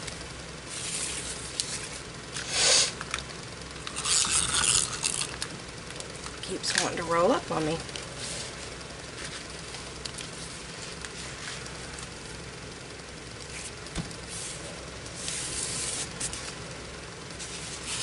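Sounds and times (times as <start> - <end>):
ribbon rustling and rubbing: 8.1 - 12.1, 13.4 - 16.6, 17.3 - 18.0.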